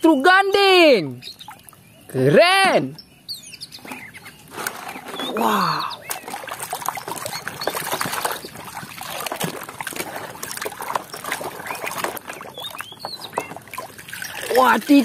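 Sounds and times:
water dripping: 1.4s - 1.9s, 5.4s - 15.0s
water sloshing in a tub: 3.8s - 15.0s.

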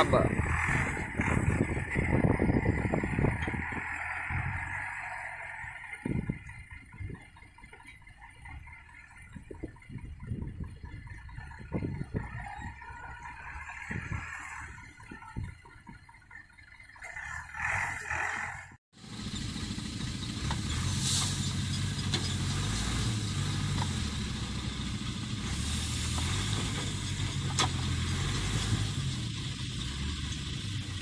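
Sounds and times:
diesel engine running: 0.0s - 31.0s.

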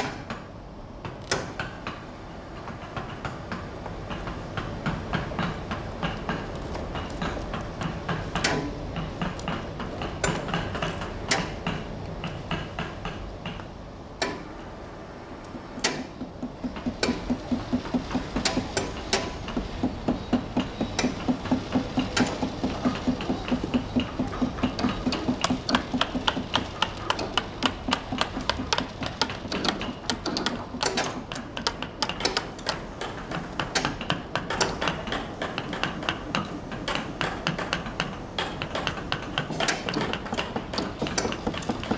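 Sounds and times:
mallet knocking on chisel: 15.8s - 33.1s, 37.2s - 41.9s.

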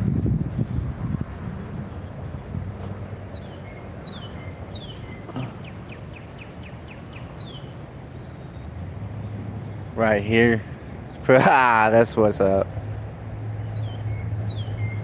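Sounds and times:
distant low rumble: 0.0s - 15.0s
songbird whistling: 2.0s - 8.6s, 13.6s - 15.0s.

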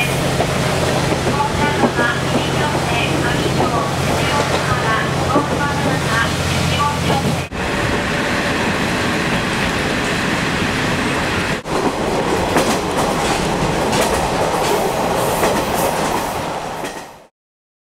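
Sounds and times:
railcar running noise: 0.0s - 17.3s
wheels clicking over rail joints: 11.6s - 17.1s.

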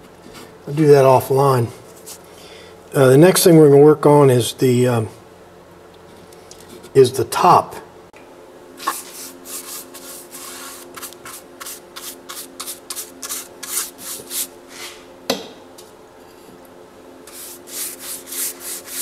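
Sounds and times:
paintbrush swishing over wood: 8.8s - 15.0s, 17.3s - 19.0s.

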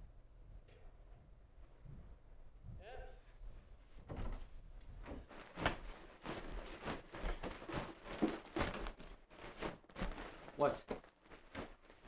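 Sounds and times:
knocks and rustles of handling: 3.4s - 12.0s.

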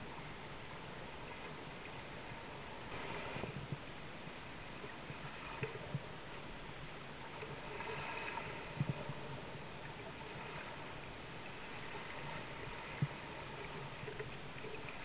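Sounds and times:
choppy water along a kayak: 0.0s - 15.0s.

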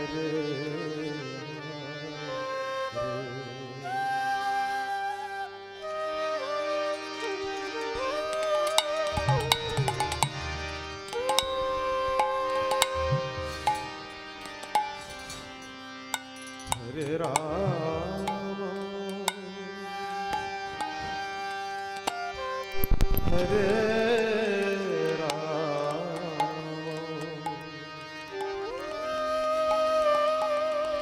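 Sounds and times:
harmonium chords: 0.0s - 31.0s
wavering melody: 2.4s - 31.0s
hand cymbal clicks: 7.6s - 19.5s, 20.3s - 23.2s.

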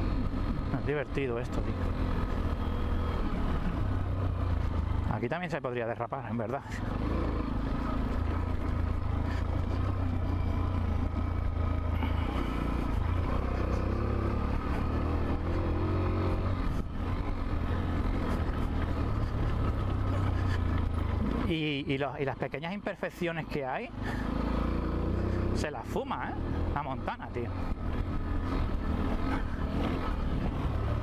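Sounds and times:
motorcycle engine running: 0.0s - 5.6s, 6.3s - 22.0s, 23.9s - 31.0s.

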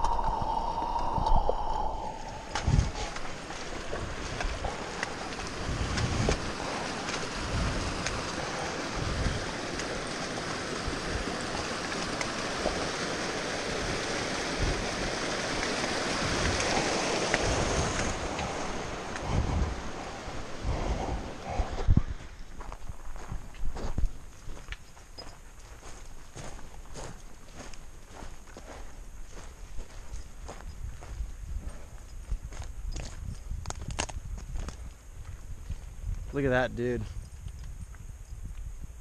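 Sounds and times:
stream rushing over rocks: 0.0s - 21.4s
footsteps on rocky trail: 2.1s - 13.2s, 20.7s - 36.3s.

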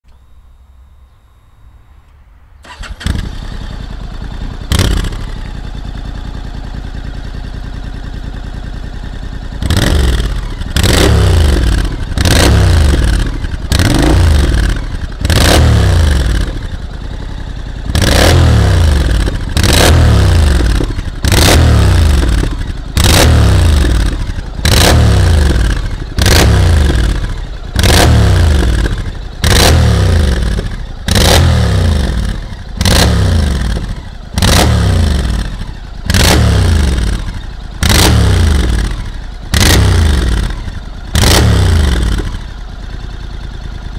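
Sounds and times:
motorcycle engine revving: 2.6s - 43.9s.

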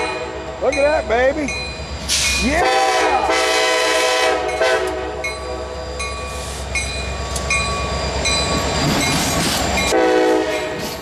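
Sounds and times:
diesel locomotive rumbling: 0.0s - 11.0s
locomotive horn: 2.6s - 5.8s, 9.9s - 10.9s
bell ringing: 5.2s - 9.2s.

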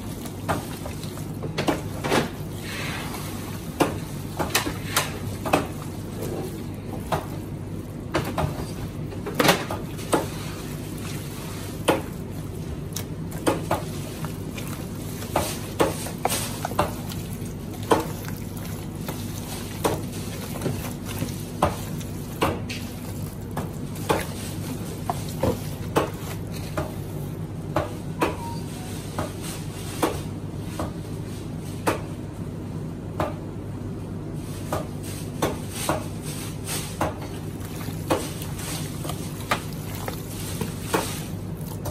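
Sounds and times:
steady low hum: 0.0s - 28.2s
wet slaps of meat in basin: 11.6s - 27.0s.

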